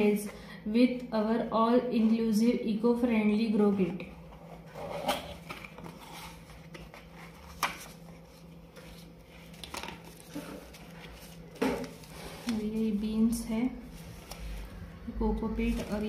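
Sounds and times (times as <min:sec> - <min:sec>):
paper packet rustling: 0:05.4 - 0:14.9.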